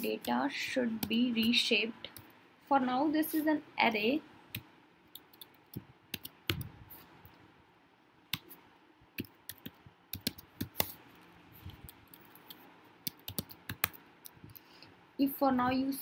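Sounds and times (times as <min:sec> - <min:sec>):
keyboard typing clicks: 0:04.5 - 0:06.7, 0:09.2 - 0:11.0, 0:11.8 - 0:14.7.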